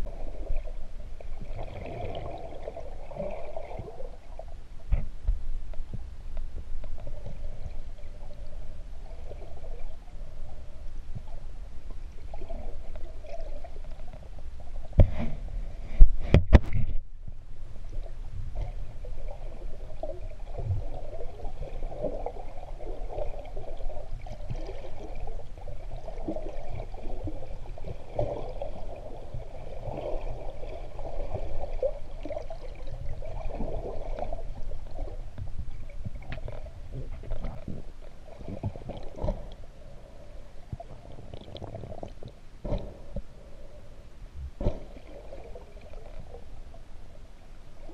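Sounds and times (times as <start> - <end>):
constant low rumble: 0.0 - 47.9
muffled underwater sloshing and gurgling: 0.0 - 47.9
faint clicks: 4.9 - 7.4.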